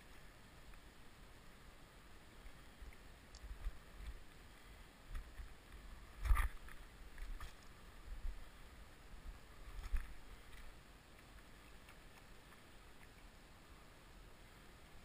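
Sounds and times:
faint clicks: 2.4 - 4.4, 9.7 - 13.4.

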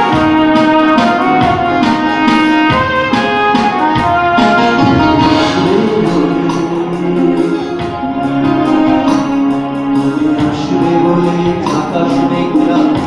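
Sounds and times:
steady percussion beat: 0.0 - 13.0
synthesizer keyboard backing: 0.0 - 13.0
man singing through microphone: 4.3 - 13.0.

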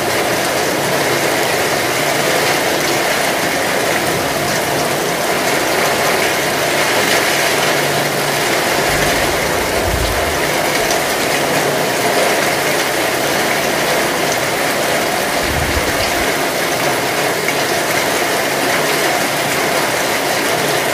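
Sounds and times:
rain on roofs and wet street: 0.0 - 20.9
low rumbles: 8.0 - 12.3, 14.4 - 16.6.

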